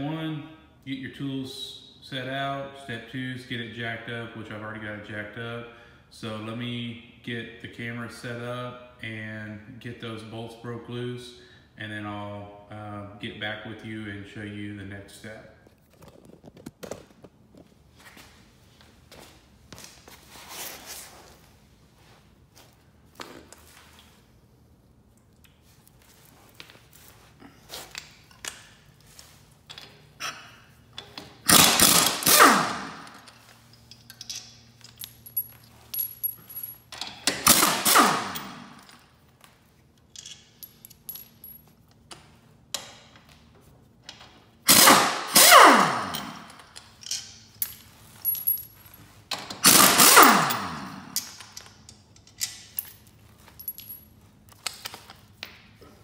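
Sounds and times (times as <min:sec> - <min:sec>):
air impact wrench hammering: 0:31.3 - 0:33.3, 0:37.3 - 0:38.8, 0:44.7 - 0:46.6, 0:49.5 - 0:51.4.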